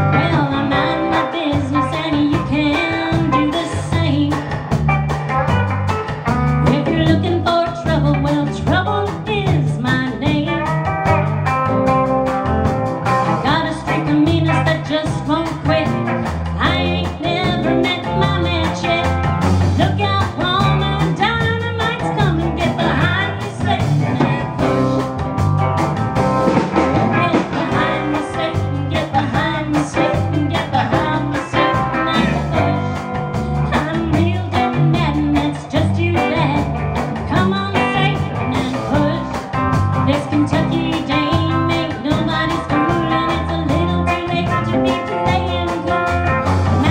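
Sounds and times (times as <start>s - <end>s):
woman singing: 0.0s - 4.8s, 6.6s - 10.9s, 13.3s - 25.0s, 27.0s - 46.9s
live band playing: 0.0s - 46.9s.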